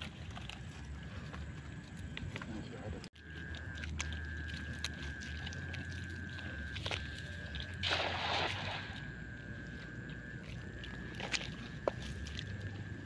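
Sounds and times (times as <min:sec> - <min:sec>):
high thin whine: 0:04.0 - 0:13.0
net splashing into water: 0:07.8 - 0:09.1.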